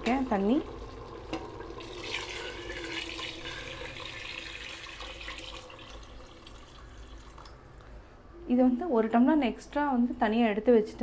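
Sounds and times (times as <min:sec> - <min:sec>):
water pouring into liquid: 0:00.1 - 0:07.6.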